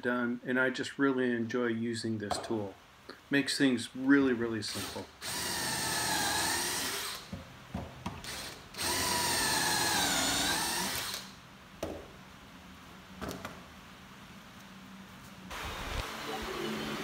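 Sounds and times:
cordless drill boring into wood: 4.7 - 7.3, 8.2 - 11.3.

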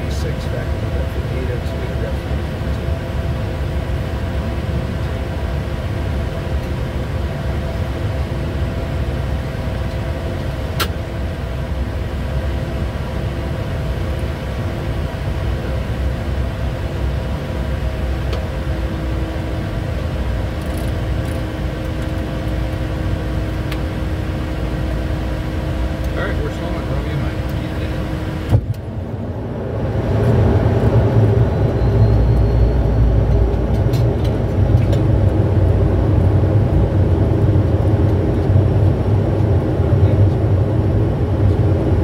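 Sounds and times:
airflow rush in cockpit: 0.0 - 42.0
sharp click: 10.8 - 11.0.

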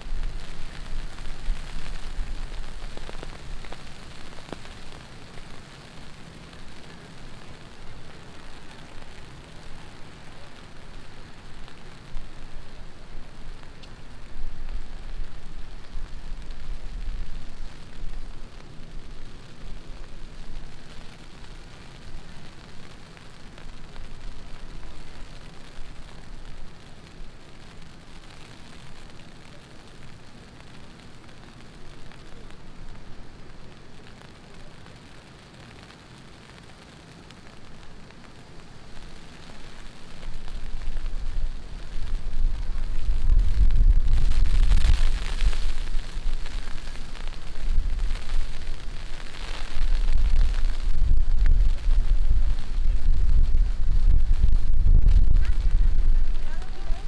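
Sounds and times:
heavy rain falling: 0.0 - 57.0
deep low rumble: 40.2 - 57.0.

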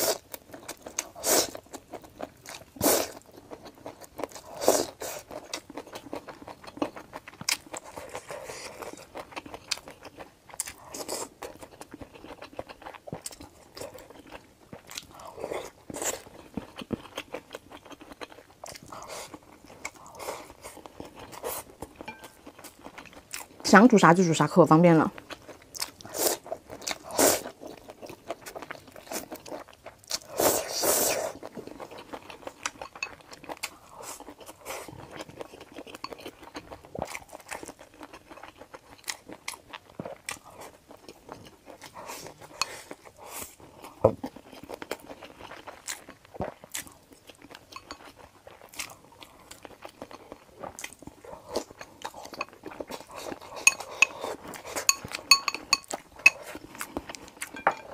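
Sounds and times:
chewing with mouth clicks: 0.0 - 23.6, 25.1 - 57.9
chopsticks clinking on glass bowl: 22.0 - 22.4, 32.8 - 33.2, 53.6 - 54.2, 54.8 - 56.5, 57.5 - 57.9.

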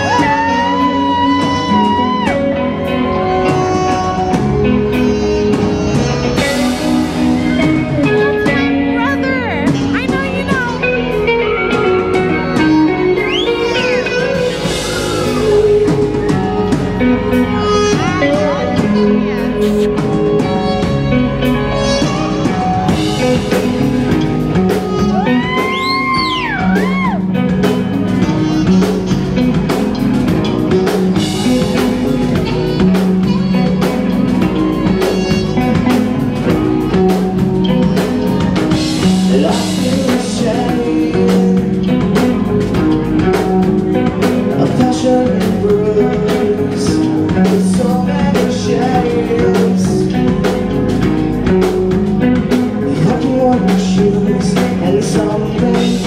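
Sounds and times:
person singing: 0.0 - 27.4, 31.1 - 56.0
saxophone: 0.0 - 44.6
bass: 0.0 - 56.0
drum kit: 0.0 - 56.0
electric guitar: 0.0 - 56.0.

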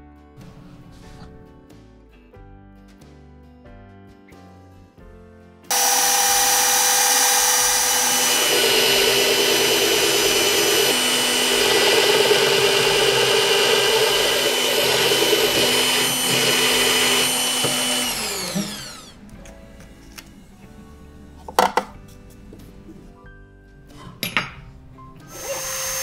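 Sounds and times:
drill press boring into wood: 5.7 - 19.2, 25.3 - 26.0
motor winding down whine: 5.7 - 19.2.

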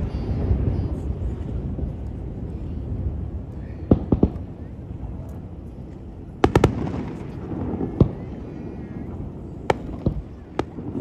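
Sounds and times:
low rumble of fireworks: 0.0 - 11.0
fireworks bangs: 3.0 - 5.2, 6.3 - 11.0.

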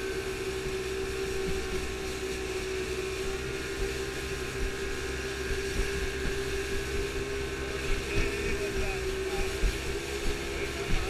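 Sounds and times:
motorboat engine droning: 0.0 - 11.0
water rushing: 0.0 - 11.0
wind: 0.0 - 11.0.

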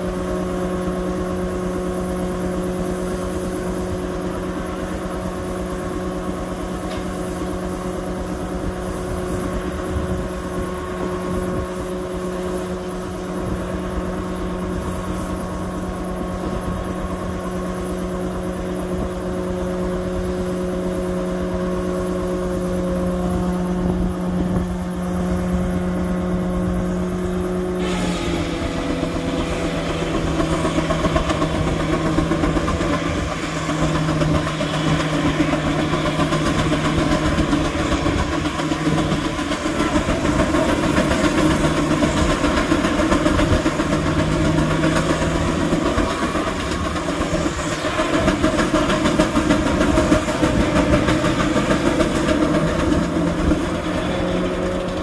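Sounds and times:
sawmill humming: 0.0 - 55.0
saw cutting log: 27.7 - 55.0.

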